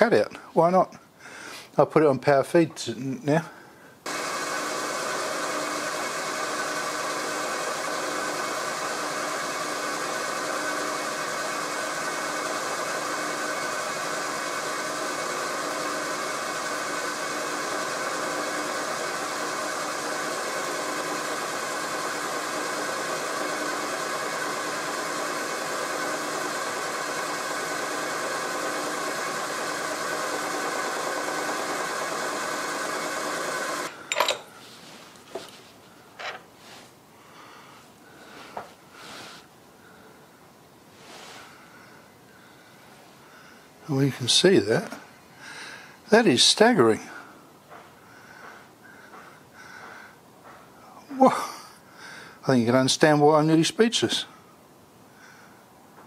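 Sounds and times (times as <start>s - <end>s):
milling machine whine: 4.1s - 34.5s.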